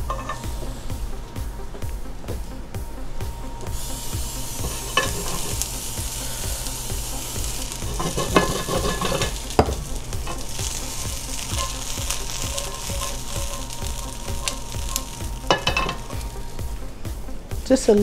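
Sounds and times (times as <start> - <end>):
vegetables sizzling in oil: 0.0 - 1.6, 3.4 - 18.0
metal tongs clattering on pan: 4.6 - 5.7, 7.4 - 16.2.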